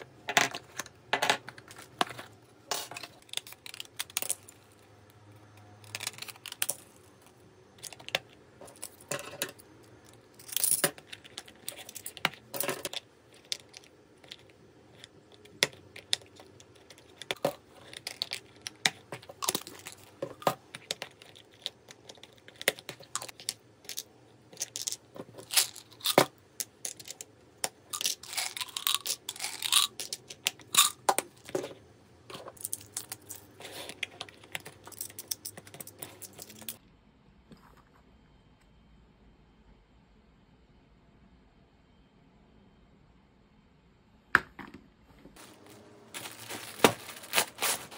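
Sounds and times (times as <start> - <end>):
capsules clicking and rattling: 0.2 - 4.8, 7.8 - 36.8
foil crinkling: 45.4 - 47.9.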